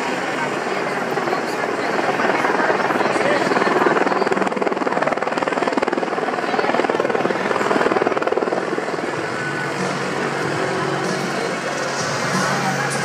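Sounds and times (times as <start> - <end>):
helicopter rotor chopping: 0.0 - 13.0
steady music tones: 7.9 - 13.0.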